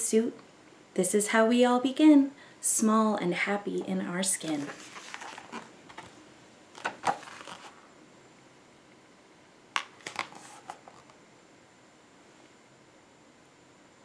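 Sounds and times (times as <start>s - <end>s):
book pages rustling: 4.4s - 7.8s, 9.8s - 11.2s.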